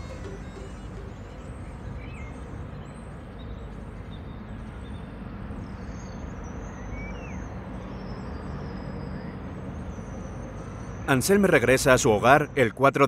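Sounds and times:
birds chirping: 0.0s - 12.7s.

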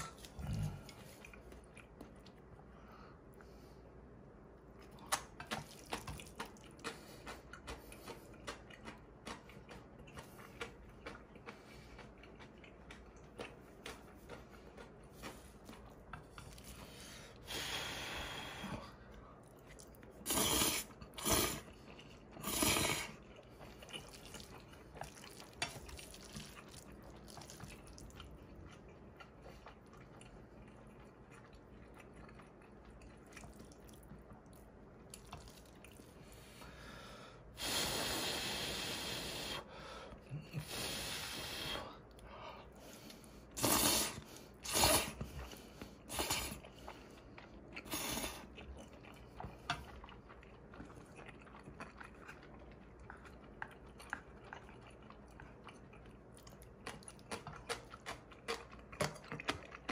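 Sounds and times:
wet chewing: 4.6s - 17.6s, 18.2s - 37.0s, 42.0s - 59.9s
loud slurps: 20.2s - 21.7s, 22.4s - 23.2s, 43.6s - 45.3s, 46.1s - 46.7s.

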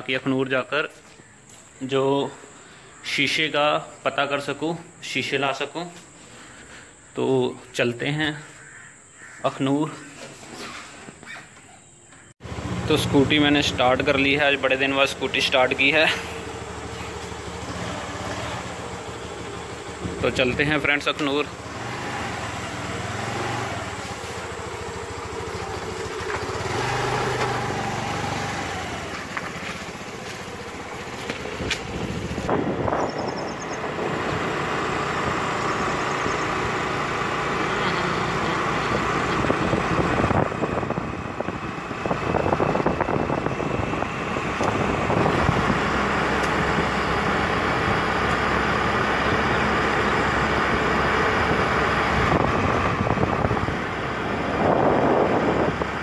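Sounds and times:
road and wind noise: 0.0s - 56.0s
scooter engine running: 12.4s - 56.0s.

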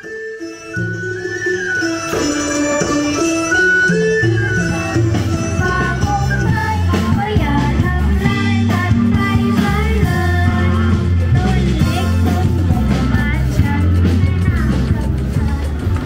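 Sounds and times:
heavy bass line: 0.8s - 16.0s
person singing: 3.5s - 16.0s.

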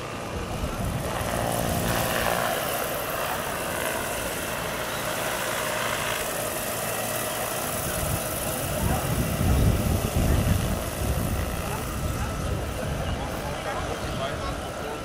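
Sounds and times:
model helicopter whirring: 0.0s - 15.0s
low gusty rumble: 7.8s - 14.7s.

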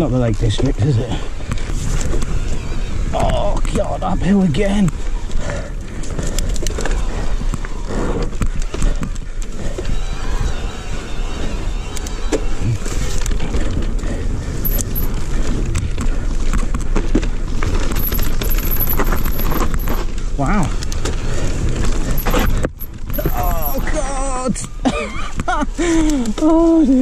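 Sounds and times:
tyres rumbling on dirt and stones: 13.4s - 24.0s
bike rattling and knocking: 14.6s - 24.0s.

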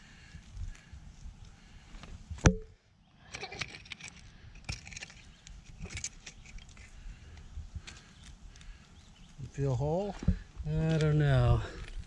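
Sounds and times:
dry scraping of dirt: 3.2s - 12.0s.

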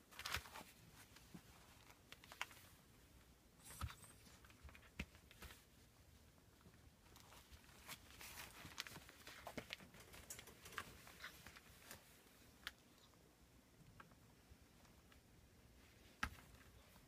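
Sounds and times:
puppy paws rustling on newspaper: 7.2s - 12.4s.

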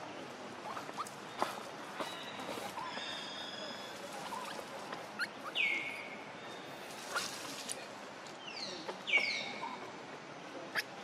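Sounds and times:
high squeaky calls: 0.6s - 6.1s
dry leaves crackling: 0.7s - 5.3s, 6.6s - 8.0s.

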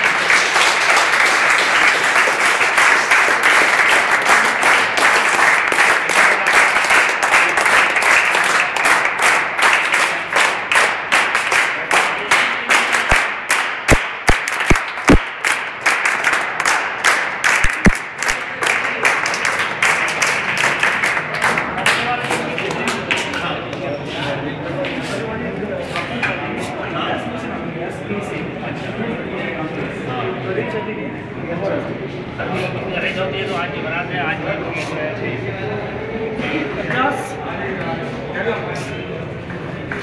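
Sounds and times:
people applauding: 0.0s - 23.8s.

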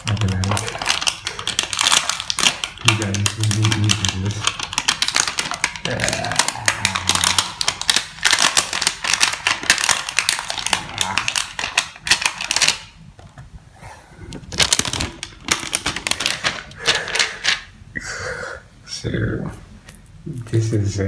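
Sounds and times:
plastic sleeve crinkling: 0.0s - 13.3s, 14.4s - 17.7s.

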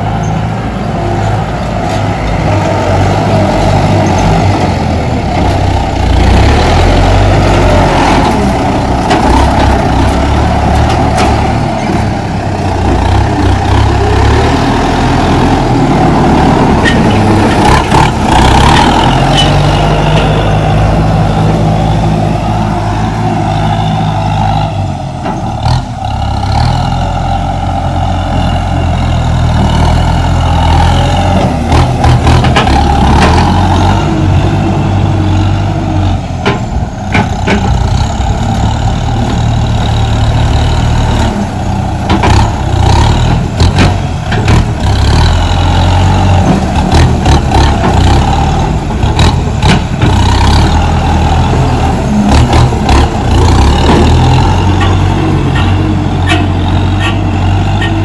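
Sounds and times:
tractor diesel engine under load: 0.0s - 58.0s
knocks and clatter: 31.4s - 33.6s, 36.4s - 38.1s, 42.1s - 42.5s, 49.0s - 50.3s.

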